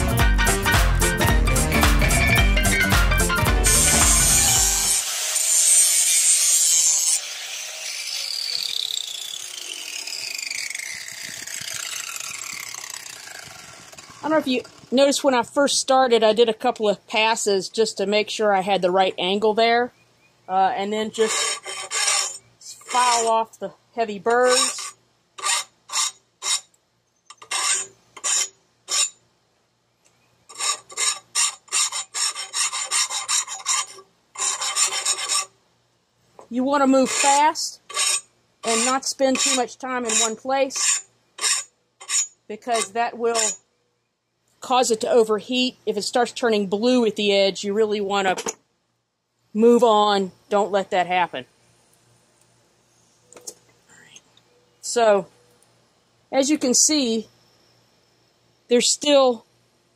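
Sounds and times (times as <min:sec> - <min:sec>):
background music: 0:00.0 - 0:05.0
angle grinder grinding steel: 0:00.9 - 0:15.1, 0:20.8 - 0:23.6, 0:24.3 - 0:26.7, 0:27.3 - 0:29.2, 0:30.5 - 0:35.5, 0:36.6 - 0:43.6
grinder winding down whine: 0:03.6 - 0:15.0.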